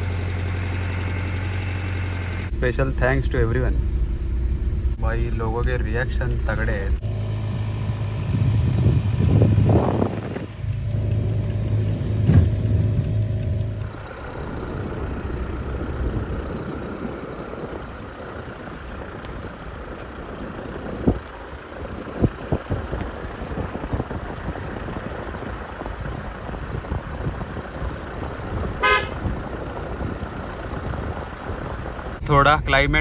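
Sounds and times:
diesel car driving by: 0:00.0 - 0:32.8
car horn toot: 0:28.6 - 0:30.4.

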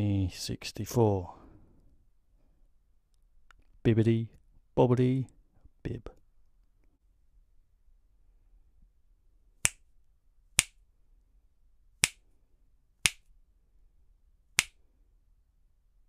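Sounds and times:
finger snaps: 0:12.0 - 0:12.2, 0:13.0 - 0:13.3, 0:14.6 - 0:14.8.

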